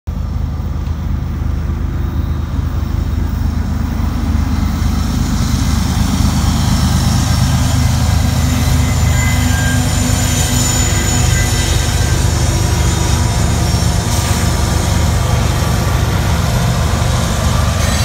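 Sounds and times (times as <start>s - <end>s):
diesel locomotive engine drone: 0.1s - 18.0s.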